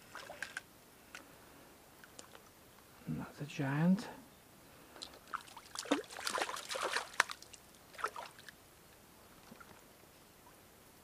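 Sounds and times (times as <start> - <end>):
fish splashing in water: 5.2 - 8.5.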